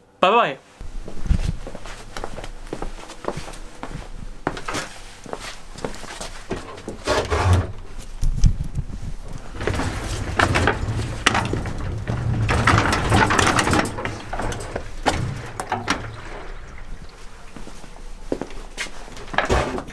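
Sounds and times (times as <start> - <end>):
footsteps on brick floor: 0.8 - 7.0, 7.9 - 12.4, 17.6 - 19.9
clattering: 9.2 - 17.3.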